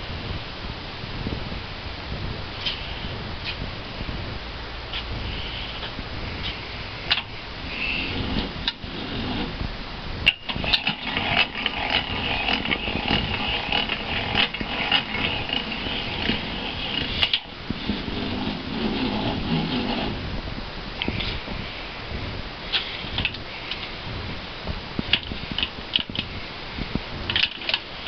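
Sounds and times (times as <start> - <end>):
mixer whirring and whining: 10.3 - 20.4.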